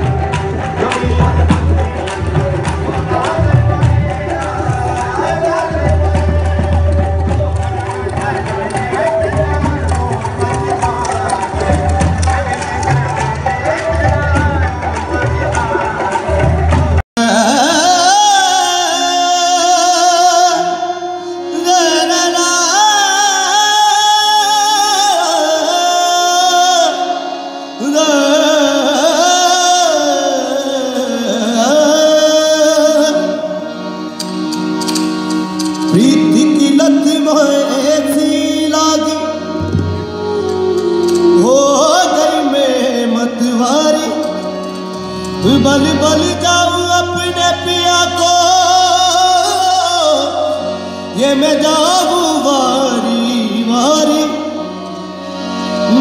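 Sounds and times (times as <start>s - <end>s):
hand percussion: 0.0s - 18.3s, 32.7s - 56.0s
man singing ornamented lines: 17.2s - 34.1s, 35.7s - 56.0s.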